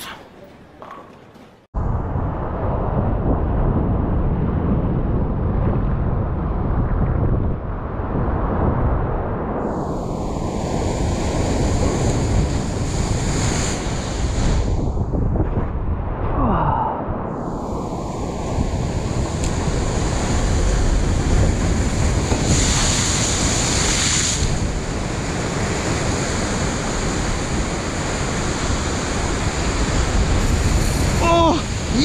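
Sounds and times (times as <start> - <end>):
wave crashing: 7.8 - 32.0
ocean surf on rocky shore: 9.7 - 15.0, 17.4 - 32.0.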